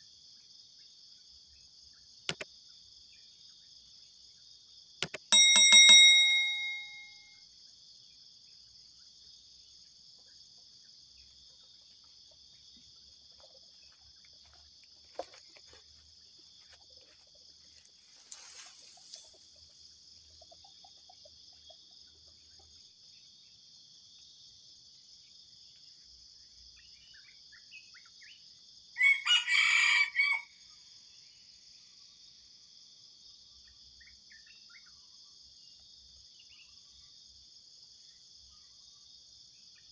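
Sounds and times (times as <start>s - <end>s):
insects droning: 7.5s - 39.9s
junglefowl crowing: 29.0s - 30.6s.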